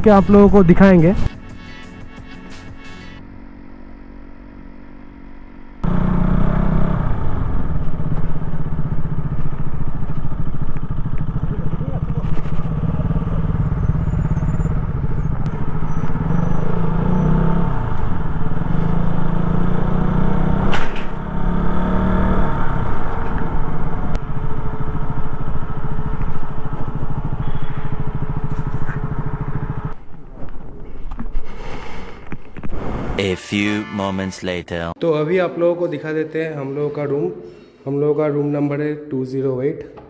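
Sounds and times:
motorcycle engine revving: 0.0s - 30.1s.

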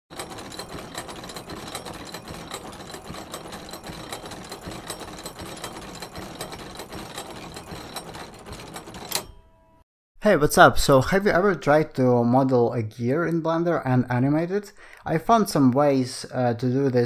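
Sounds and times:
turning gears clattering: 0.1s - 9.8s.

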